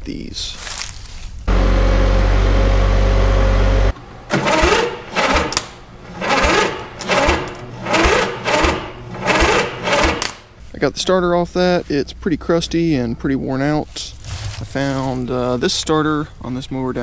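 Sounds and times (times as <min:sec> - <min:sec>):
steady low hum: 0:01.4 - 0:17.0
power tool whirring: 0:01.5 - 0:10.4.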